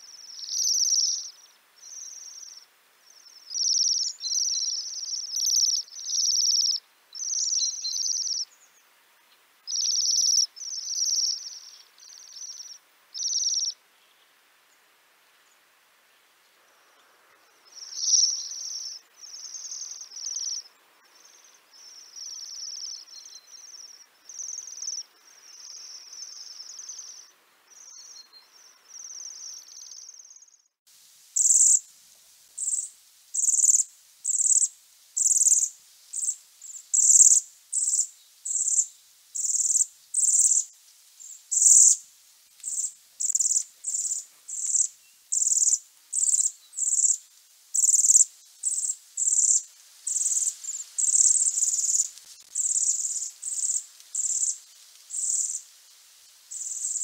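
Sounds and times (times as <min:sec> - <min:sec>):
birds trilling calls: 0:09.7 - 0:13.7, 0:17.7 - 0:28.2.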